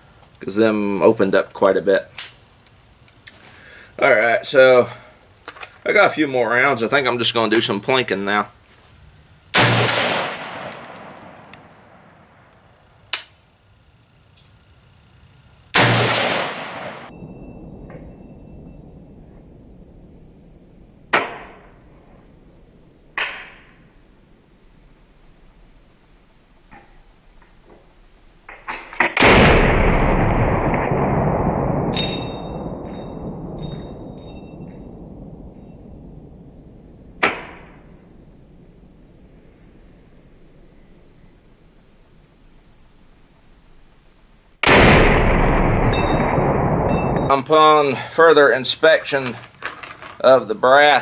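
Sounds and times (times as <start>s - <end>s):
rifle shots with echo: 9.6s - 12.4s, 15.8s - 17.1s, 29.2s - 35.5s, 44.6s - 48.1s
short metallic ring: 32.0s - 34.8s.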